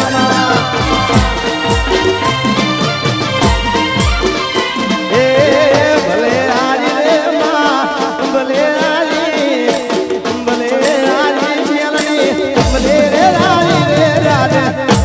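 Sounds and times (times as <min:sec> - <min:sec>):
ornamented folk melody: 0:00.0 - 0:06.5
steady percussion beat: 0:00.0 - 0:15.0.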